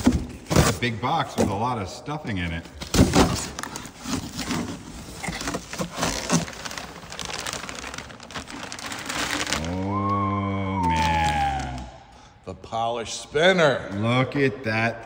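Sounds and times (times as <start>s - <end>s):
packing stuffing crumpling: 3.2s - 10.2s.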